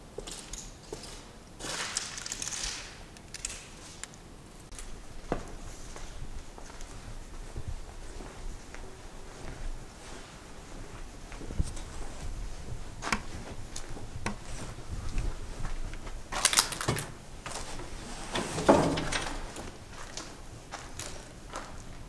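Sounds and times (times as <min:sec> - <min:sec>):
footsteps crunching over debris: 0:04.7 - 0:18.2, 0:19.3 - 0:22.0.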